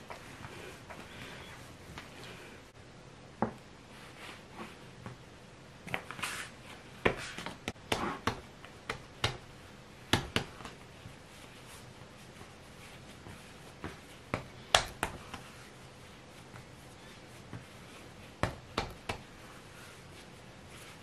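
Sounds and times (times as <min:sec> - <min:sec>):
dough kneaded by hand: 0:03.4 - 0:21.0
sharp taps and slaps: 0:07.1 - 0:09.5, 0:14.3 - 0:15.4, 0:18.4 - 0:19.3.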